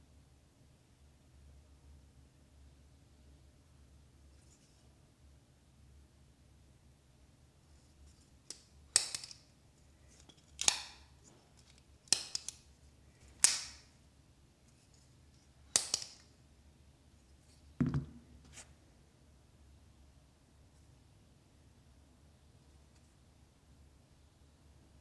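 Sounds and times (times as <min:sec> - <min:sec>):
dull knock: 0:17.8 - 0:18.2.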